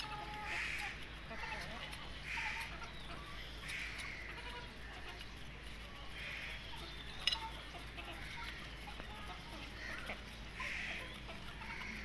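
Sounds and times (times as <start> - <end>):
young chickens calling: 0.0 - 12.0.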